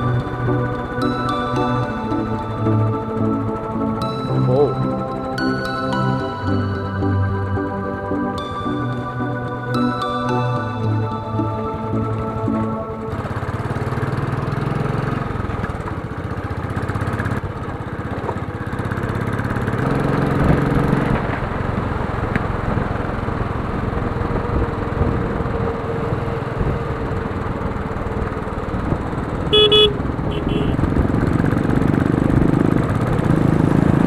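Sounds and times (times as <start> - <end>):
motorcycle engine running: 0.0 - 34.0
wind and road noise: 6.5 - 34.0
short beep: 29.5 - 30.8.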